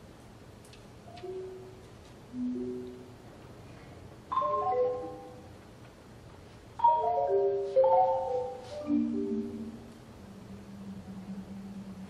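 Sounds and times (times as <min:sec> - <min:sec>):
marimba played with mallets: 0:01.1 - 0:03.2, 0:04.3 - 0:05.6, 0:06.8 - 0:12.0.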